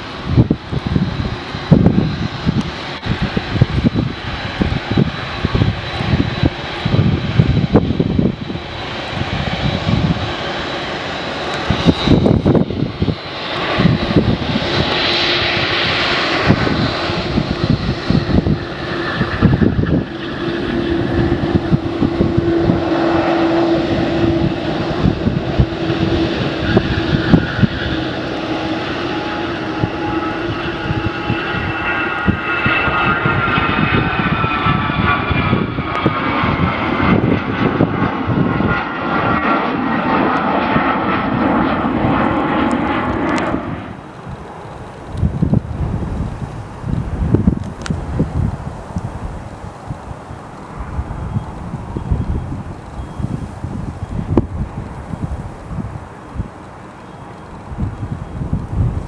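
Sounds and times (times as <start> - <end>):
jet engine whine: 0.0 - 59.0
jet engines climbing out: 0.0 - 59.0
wind rumbling on microphone: 0.0 - 59.0.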